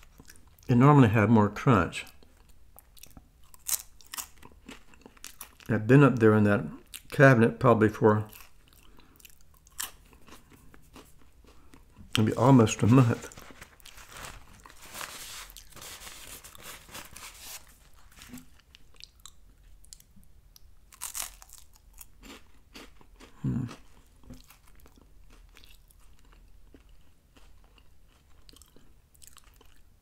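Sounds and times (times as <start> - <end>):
person chewing crunchy wafer: 0.0 - 0.7, 2.0 - 5.7, 8.2 - 30.0
mouth sounds: 23.3 - 23.8.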